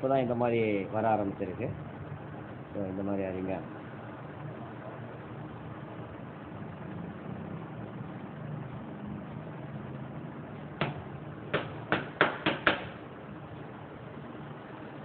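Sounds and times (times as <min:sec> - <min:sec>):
steady low hum: 0:00.0 - 0:15.0
sharp knocks on metal: 0:10.8 - 0:13.0.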